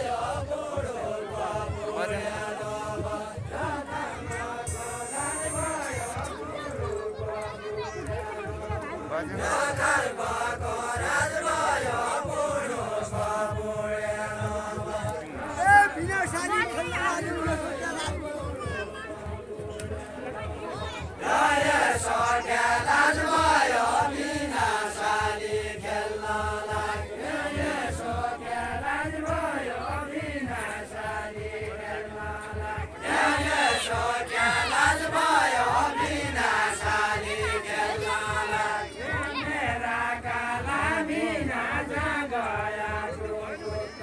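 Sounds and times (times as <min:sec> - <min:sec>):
men singing together: 0:00.0 - 0:44.0.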